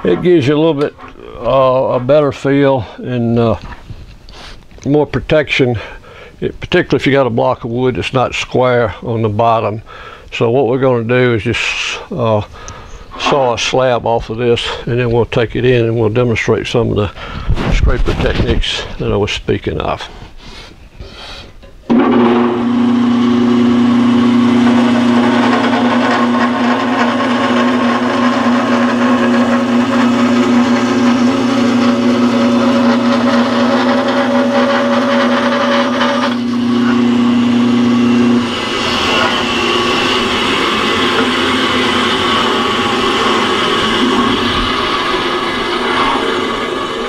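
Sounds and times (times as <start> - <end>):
band saw motor hum: 21.9 - 47.0
saw blade cutting wood: 21.9 - 47.0.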